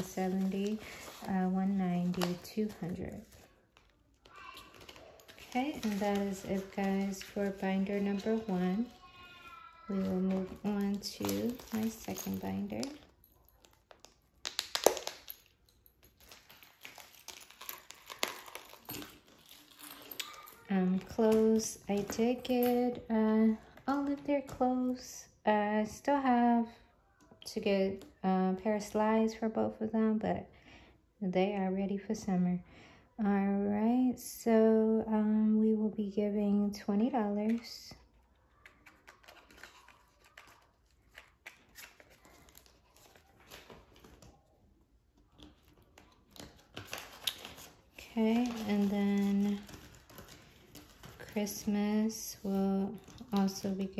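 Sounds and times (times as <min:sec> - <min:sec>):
paper banknotes rustling: 0:00.0 - 0:13.1, 0:38.6 - 0:44.3, 0:45.8 - 0:53.9
plastic binder pages crinkling: 0:00.0 - 0:24.9, 0:37.4 - 0:53.9.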